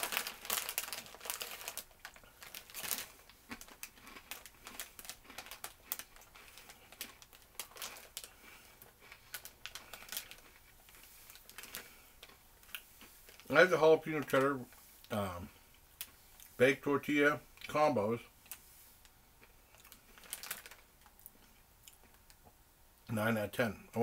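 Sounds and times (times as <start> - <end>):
plastic snack bag crinkling: 0.0 - 15.2, 19.4 - 22.4.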